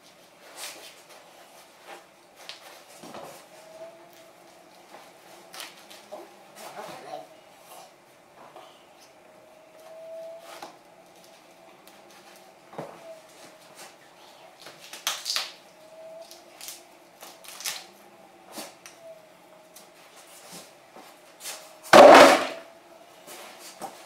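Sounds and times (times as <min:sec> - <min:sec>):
sharp knocks: 0:21.9 - 0:22.6.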